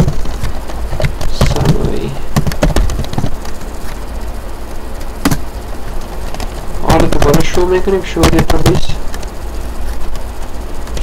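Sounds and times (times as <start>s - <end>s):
computer keyboard clicking: 0.0s - 3.6s
loud keystroke: 0.0s - 4.0s.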